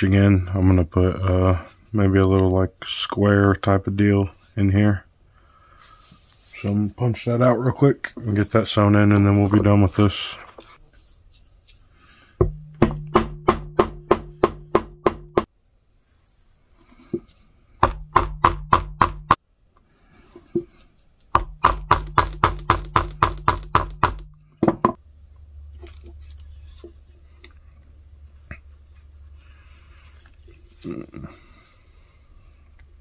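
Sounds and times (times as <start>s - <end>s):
faint handling sounds: 3.6s - 12.4s, 19.7s - 21.3s, 25.0s - 33.0s
mallet striking metal punch: 12.4s - 15.5s, 17.8s - 19.4s, 21.4s - 25.0s.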